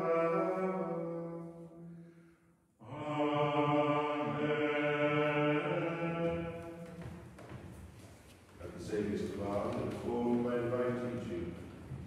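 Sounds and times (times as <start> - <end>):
plainchant singing: 0.0 - 1.9, 2.8 - 7.2.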